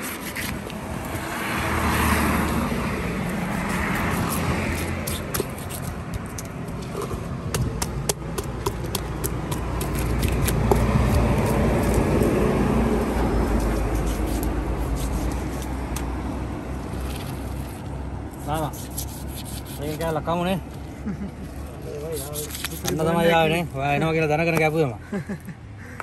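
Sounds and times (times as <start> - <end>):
vehicle engine rumble passing: 0.5 - 7.5, 9.6 - 18.3.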